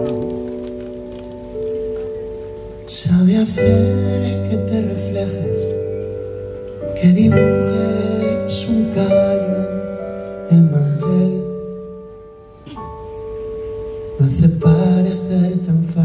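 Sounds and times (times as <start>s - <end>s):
electric keyboard chords: 0.0s - 16.0s
man singing pop ballad: 2.9s - 6.1s, 6.9s - 11.9s, 14.2s - 16.0s.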